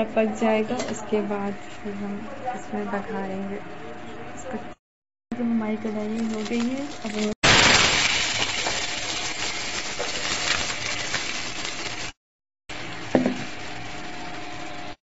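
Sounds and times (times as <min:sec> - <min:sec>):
potatoes sizzling in hot oil: 0:05.8 - 0:15.0.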